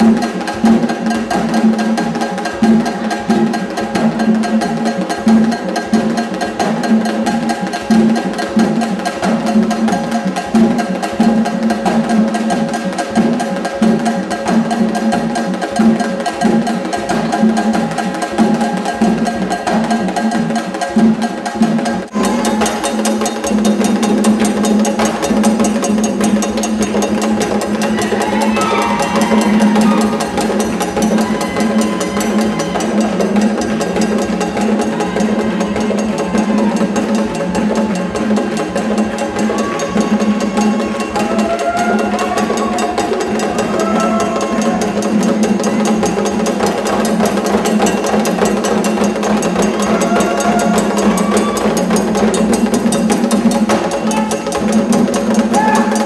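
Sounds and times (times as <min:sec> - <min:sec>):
hand drums playing fast rhythm: 0:00.0 - 0:56.0
faint voices singing: 0:27.4 - 0:47.3, 0:49.5 - 0:52.5.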